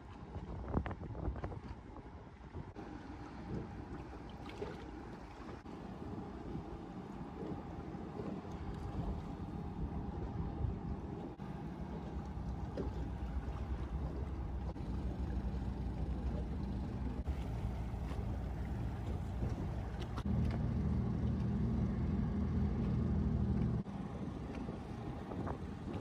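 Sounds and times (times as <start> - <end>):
marine engine drone: 0.0 - 26.0.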